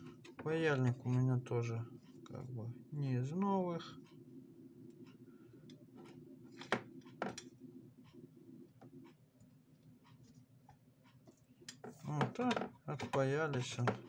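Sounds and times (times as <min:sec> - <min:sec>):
steady low hum: 0:00.0 - 0:14.0
soldering iron scraping and ticking: 0:10.0 - 0:14.0.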